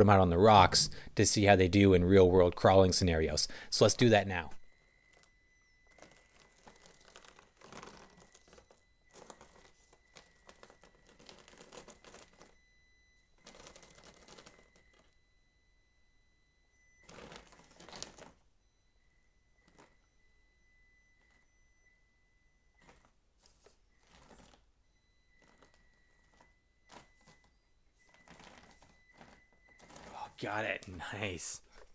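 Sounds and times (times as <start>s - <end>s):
thin steady high tone: 2.6s - 24.1s
toy crawler tires crunching: 5.0s - 12.6s.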